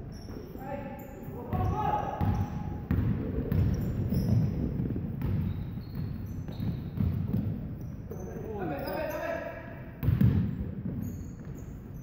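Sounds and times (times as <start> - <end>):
sneaker squeaks: 0.0 - 12.0
basketball dribbling thuds: 1.5 - 8.2, 10.0 - 12.0.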